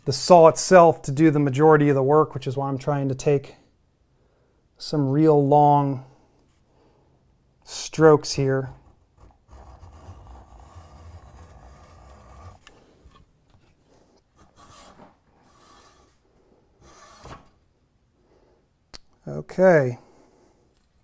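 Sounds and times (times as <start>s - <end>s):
hacksaw cutting plastic: 8.7s - 13.2s.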